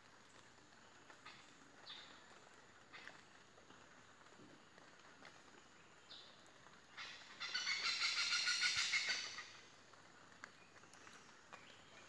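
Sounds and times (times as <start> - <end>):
hornbill pulsing call: 7.4 - 9.5.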